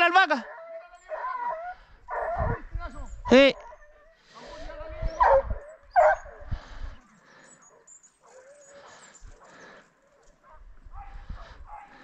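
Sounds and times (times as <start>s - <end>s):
hounds baying in the distance: 0.3s - 12.0s.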